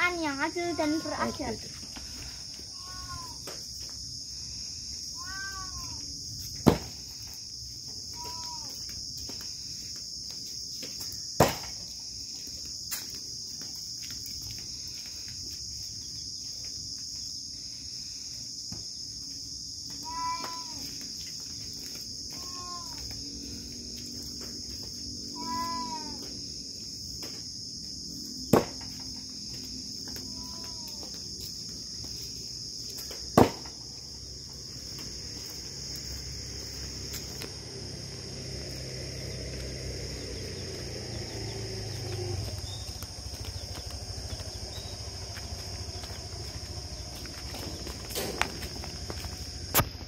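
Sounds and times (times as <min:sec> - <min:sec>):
crickets chirping: 0:00.0 - 0:50.0
axe striking wooden log: 0:06.6 - 0:06.9, 0:11.4 - 0:11.8, 0:28.5 - 0:29.0, 0:33.4 - 0:33.8.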